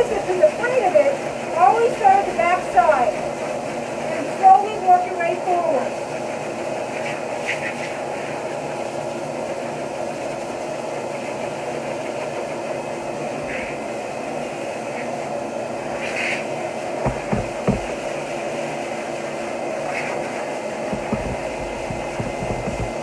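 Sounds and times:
dog dryer blowing: 0.0 - 23.0
low thumps: 17.0 - 18.1, 20.9 - 23.0.

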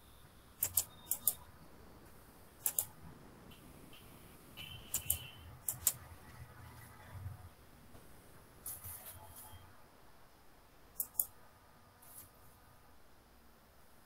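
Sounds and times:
computer mouse clicking: 0.6 - 1.4, 2.6 - 3.0, 4.9 - 6.0, 11.0 - 11.4.

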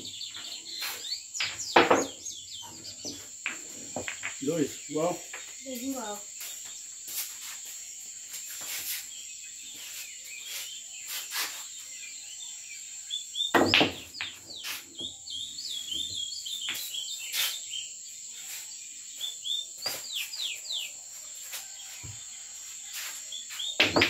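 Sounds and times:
birds chirping: 0.0 - 24.0
cricket trill: 0.0 - 24.0
balls rolling on cloth: 2.6 - 5.5
pool balls clacking: 3.4 - 4.5, 13.6 - 14.4, 23.8 - 24.0.

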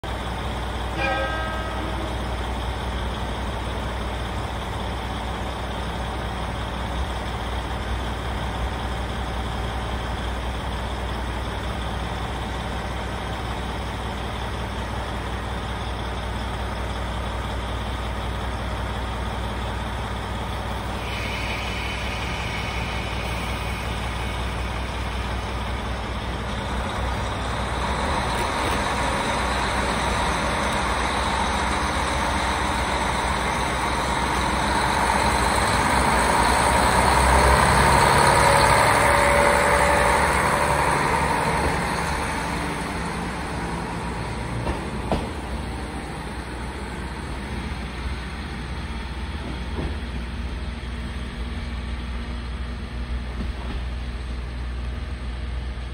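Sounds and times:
diesel railcar engine idling: 0.0 - 55.9
high hiss: 20.9 - 25.4.

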